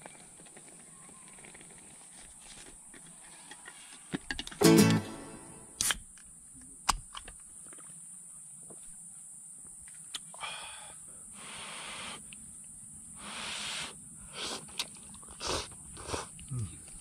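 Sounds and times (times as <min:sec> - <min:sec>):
person blowing and slurping noodles: 0:13.5 - 0:16.3.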